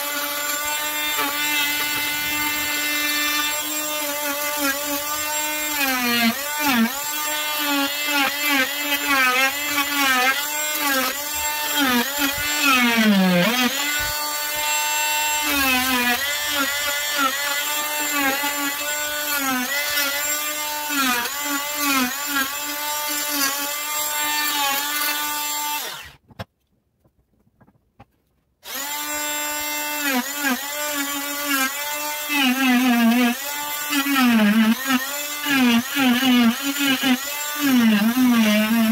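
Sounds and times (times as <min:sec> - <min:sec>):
oscillating multi-tool whining: 0:00.0 - 0:26.1, 0:28.6 - 0:38.9.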